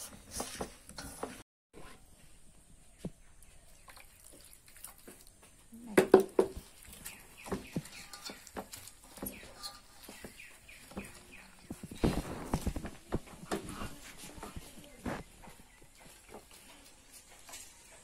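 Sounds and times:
hands squelching food in water: 0:03.4 - 0:05.5, 0:06.2 - 0:12.0.

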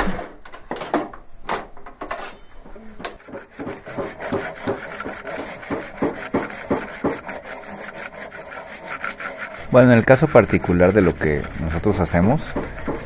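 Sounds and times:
hand tool rasping wood: 0:03.2 - 0:13.0.

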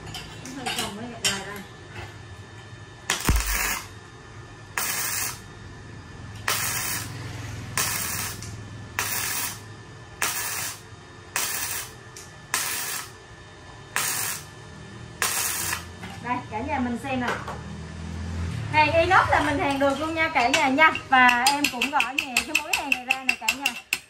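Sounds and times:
welder arc bursts: 0:03.1 - 0:03.9, 0:04.7 - 0:05.5, 0:06.4 - 0:13.2, 0:13.9 - 0:14.6, 0:15.2 - 0:16.0.

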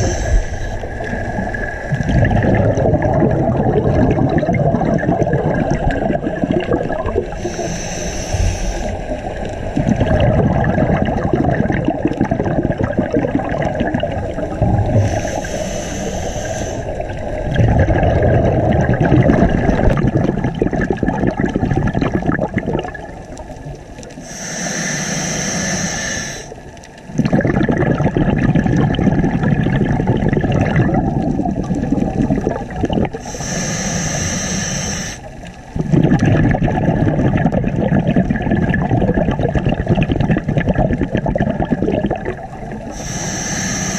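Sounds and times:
regulator hiss on inhale: 0:00.0 - 0:02.1, 0:07.3 - 0:09.5, 0:14.8 - 0:17.1, 0:24.1 - 0:26.7, 0:33.2 - 0:35.6, 0:42.9 - 0:43.9
exhaled bubbles rushing: 0:00.0 - 0:24.3, 0:25.6 - 0:33.6, 0:34.2 - 0:43.9.

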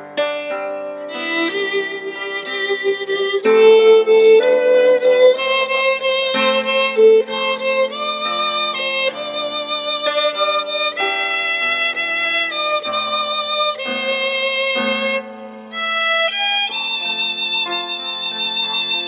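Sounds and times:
low sustained accompaniment: 0:00.0 - 0:19.0
violin slow melody: 0:00.0 - 0:19.0.

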